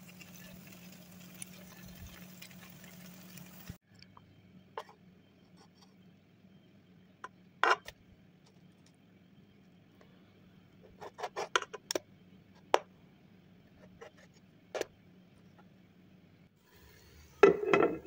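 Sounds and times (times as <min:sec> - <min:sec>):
metal spatula scraping frying pan: 0:00.0 - 0:03.5.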